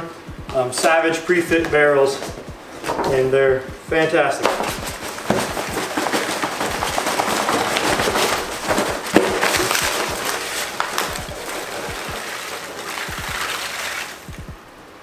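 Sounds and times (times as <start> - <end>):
packing peanuts pouring out: 4.4 - 14.4.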